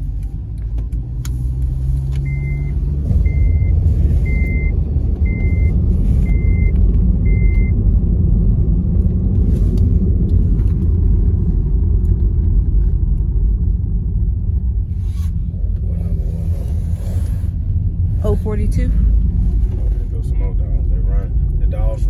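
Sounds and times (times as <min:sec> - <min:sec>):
vehicle interior rumble: 0:00.0 - 0:22.0
electronic beeps: 0:02.2 - 0:06.7, 0:07.3 - 0:07.7.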